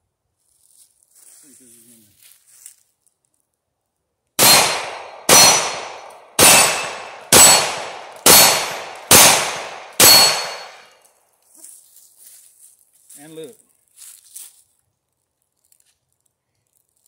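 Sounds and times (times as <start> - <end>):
pistol shots: 4.4 - 10.9.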